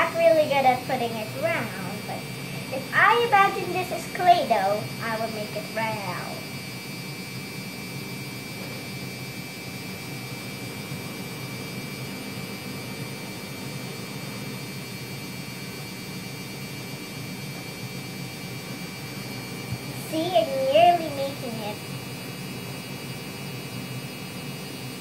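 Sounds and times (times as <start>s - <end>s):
constant high tone: 0.0s - 6.5s, 19.8s - 21.8s
background hum and hiss: 0.0s - 25.0s.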